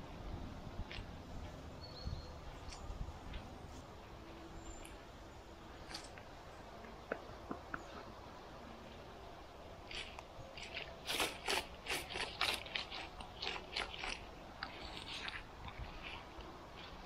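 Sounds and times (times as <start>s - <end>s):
crunching and scraping strokes: 9.8s - 17.0s.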